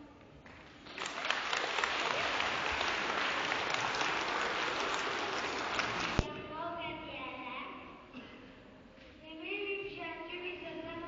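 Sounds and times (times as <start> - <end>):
audience applauding: 0.8 - 6.3.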